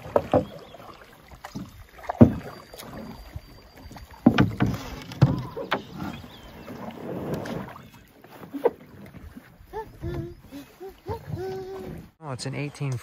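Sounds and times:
hollow knocks against canoe hull: 0:00.0 - 0:03.0, 0:03.8 - 0:06.2.

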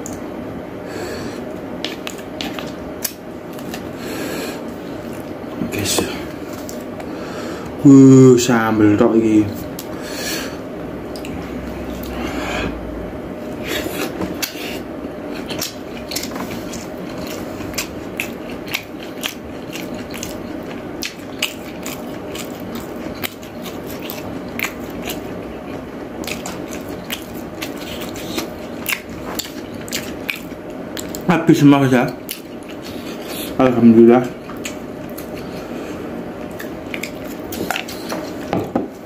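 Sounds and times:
chewing: 0:15.3 - 0:31.3, 0:32.1 - 0:33.6, 0:34.4 - 0:35.8, 0:36.4 - 0:38.5.

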